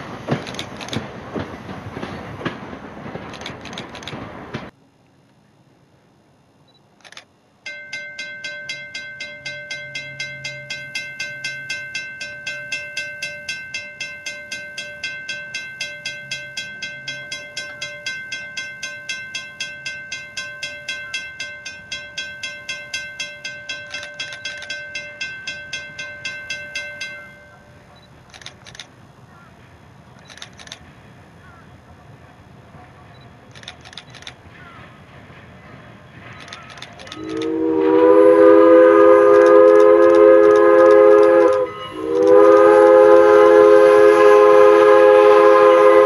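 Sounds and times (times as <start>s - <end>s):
railroad crossing bell ringing: 7.6s - 28.8s, 36.4s - 46.0s.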